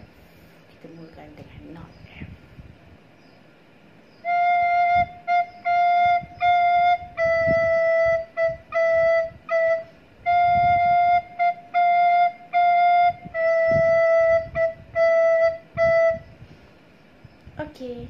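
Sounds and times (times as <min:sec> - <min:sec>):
quick breaths: 0:00.0 - 0:00.7
recorder playing notes: 0:04.2 - 0:16.4.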